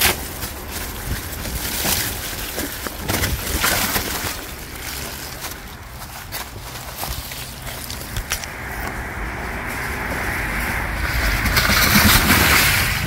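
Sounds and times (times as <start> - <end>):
bike rattling over bumps: 0.0 - 13.0
tyres crackling over dry leaves: 0.0 - 13.0
wind rumble on microphone: 0.0 - 13.0.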